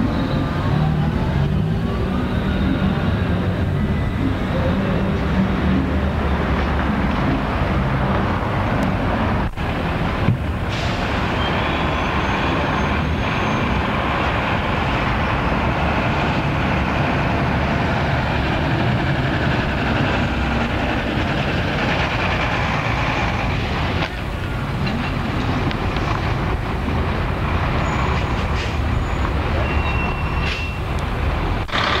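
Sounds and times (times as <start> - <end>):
vehicle rumble: 0.0 - 32.0
faint high squeals: 11.4 - 13.8, 27.8 - 30.8.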